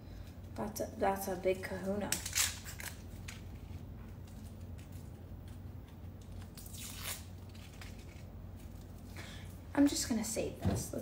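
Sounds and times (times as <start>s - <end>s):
shallot skin crackling and rustling: 1.6s - 9.2s.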